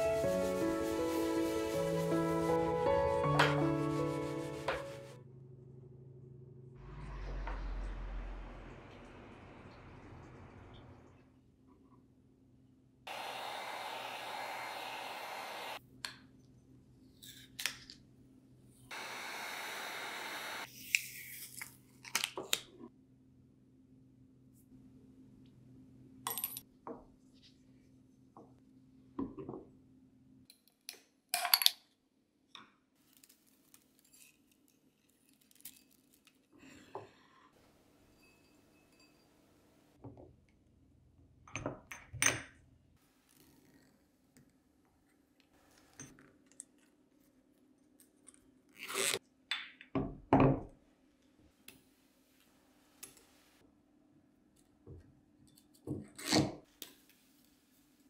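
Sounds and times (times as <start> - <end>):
heat gun hissing: 13.1 - 15.8, 18.9 - 20.7
glass jar clinking: 38.1 - 39.4.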